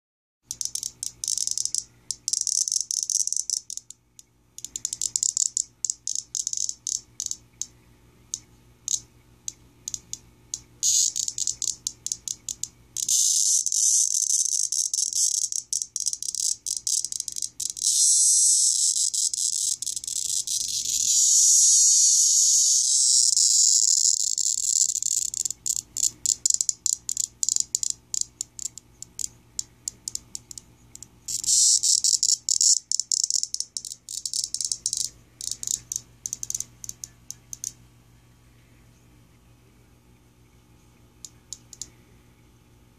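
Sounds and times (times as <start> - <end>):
cicada rasping buzz: 0.5 - 3.9, 4.6 - 7.4, 9.9 - 10.2, 10.8 - 37.8.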